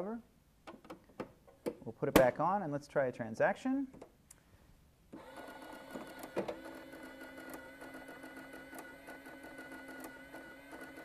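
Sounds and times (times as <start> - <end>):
receipt printer ticking: 5.2 - 11.0.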